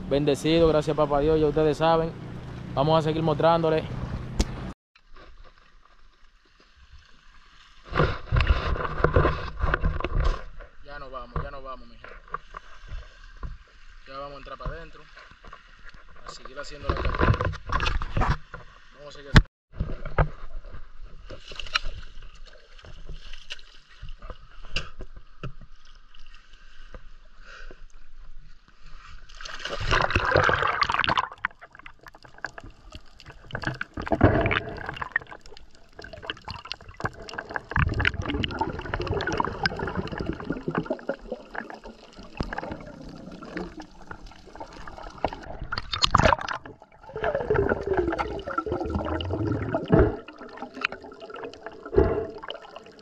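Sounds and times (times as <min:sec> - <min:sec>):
water sloshing and splashing: 0:19.8 - 0:27.3, 0:28.9 - 0:53.0.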